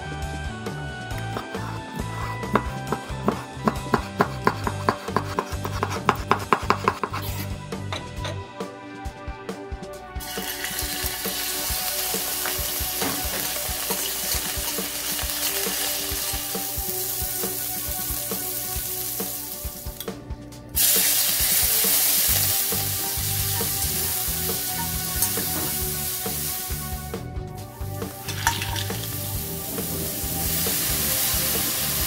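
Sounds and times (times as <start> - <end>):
soft background music: 0.0 - 32.0
seafood sizzling in hot oil: 10.2 - 20.0, 20.8 - 26.8, 28.2 - 32.0.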